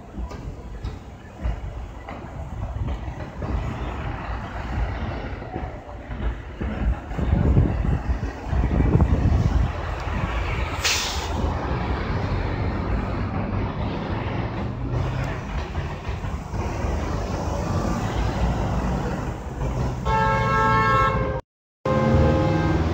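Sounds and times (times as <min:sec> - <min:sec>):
street traffic rumble: 0:00.0 - 0:22.9
short hiss: 0:10.8 - 0:11.4.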